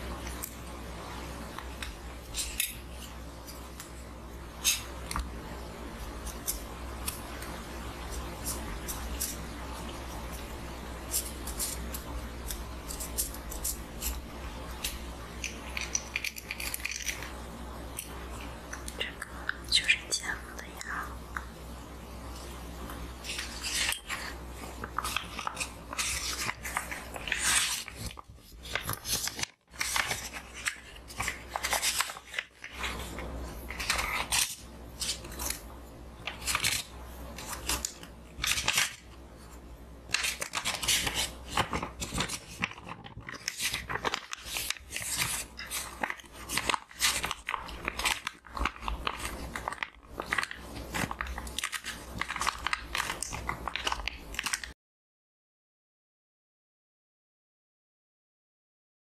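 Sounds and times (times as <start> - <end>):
paper crinkling and rustling: 22.3 - 54.8.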